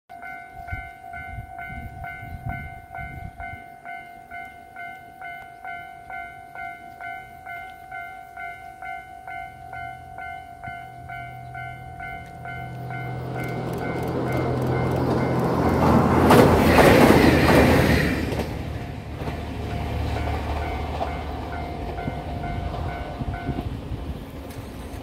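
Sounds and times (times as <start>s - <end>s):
level crossing bell ringing: 0.1s - 15.9s
diesel train humming: 0.1s - 25.0s.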